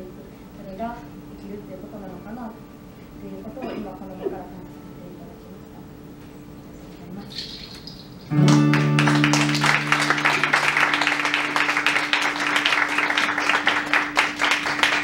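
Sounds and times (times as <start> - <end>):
acoustic guitar chord strummed: 8.3 - 15.0
audience applause: 8.3 - 15.0.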